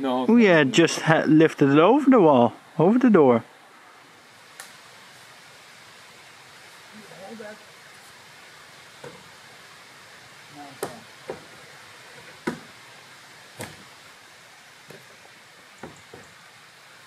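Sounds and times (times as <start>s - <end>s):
steady hiss: 0.0s - 17.0s
sharp wooden knocks: 10.8s - 11.6s, 12.2s - 12.8s, 13.6s - 13.9s, 15.8s - 16.4s.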